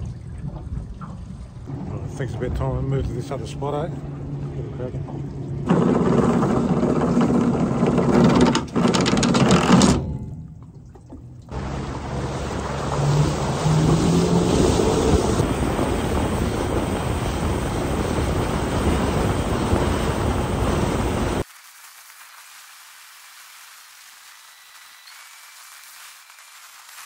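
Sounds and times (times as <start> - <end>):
outboard motor revving: 1.7 - 9.8, 11.5 - 21.4
rushing water: 10.4 - 27.0
heavy wind: 11.6 - 21.4
faint hiss: 21.4 - 27.0.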